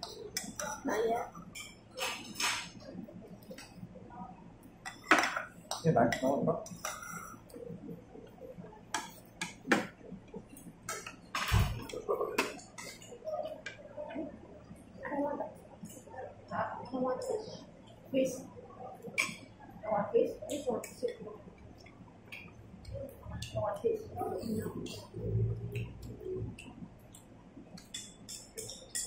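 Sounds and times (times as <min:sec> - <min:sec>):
utensils clinking on porcelain bowls: 0:00.0 - 0:02.8, 0:27.8 - 0:29.0.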